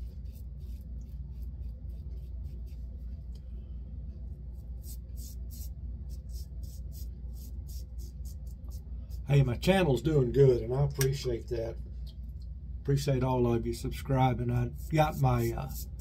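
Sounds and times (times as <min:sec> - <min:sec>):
steady low hum: 0:00.0 - 0:16.0
razor scraping stubble: 0:14.2 - 0:16.0.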